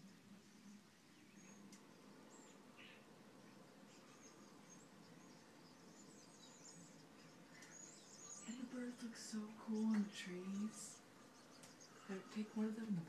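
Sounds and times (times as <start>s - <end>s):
birds chirping: 0.0s - 13.0s
faint low hum: 0.0s - 13.0s.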